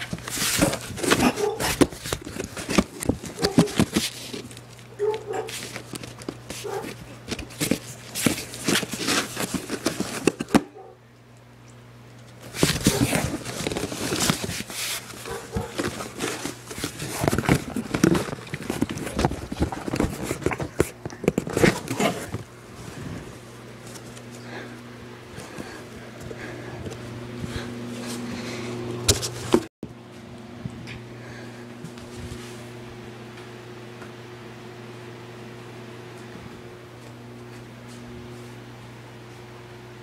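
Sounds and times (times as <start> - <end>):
cat scratching cardboard box: 0.1 - 10.5, 12.5 - 22.4.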